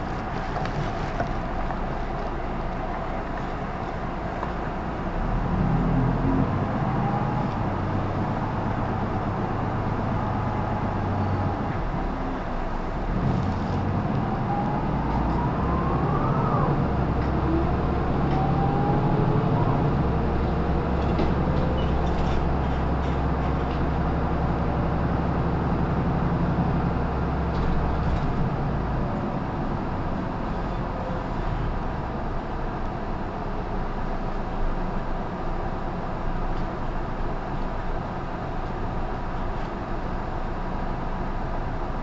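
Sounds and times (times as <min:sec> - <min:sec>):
diesel bus engine droning: 0:00.0 - 0:42.0
rising whine: 0:13.8 - 0:20.8.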